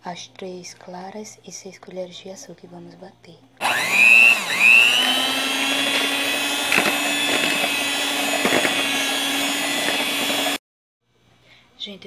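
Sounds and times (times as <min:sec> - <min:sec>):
electric hand mixer whine: 0:03.6 - 0:10.6.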